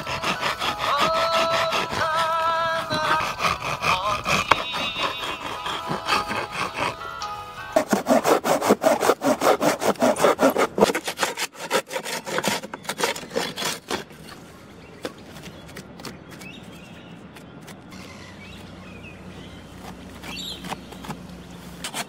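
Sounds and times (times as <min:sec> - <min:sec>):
hand saw cutting branch: 0:00.0 - 0:14.4, 0:19.6 - 0:22.0.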